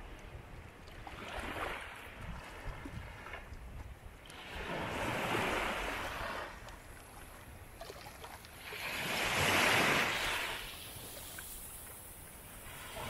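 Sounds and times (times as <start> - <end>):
sea waves washing in: 4.3 - 13.0.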